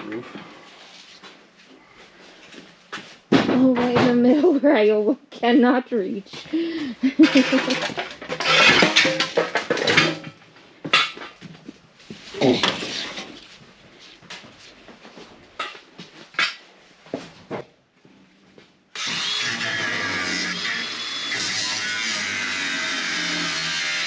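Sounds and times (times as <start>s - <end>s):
objects knocking and clattering: 3.3s - 4.4s, 7.1s - 13.5s, 14.3s - 17.7s.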